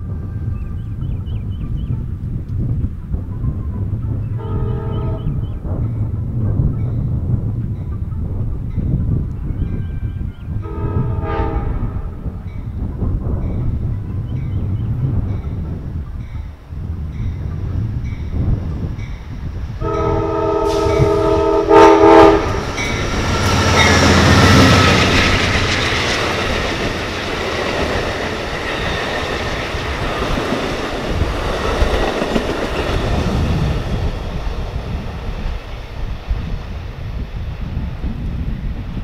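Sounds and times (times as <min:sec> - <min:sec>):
locomotive rumble: 0:00.0 - 0:39.0
train horn blasts: 0:03.7 - 0:05.4, 0:10.6 - 0:12.4, 0:19.8 - 0:25.1
train cars clickety-clack: 0:17.2 - 0:39.0.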